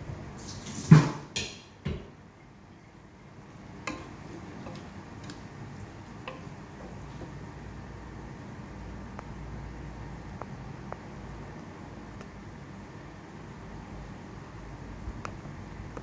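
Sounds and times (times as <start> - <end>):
kitchen clatter: 3.8 - 5.5
wooden spatula knocking metal pot: 3.8 - 7.4.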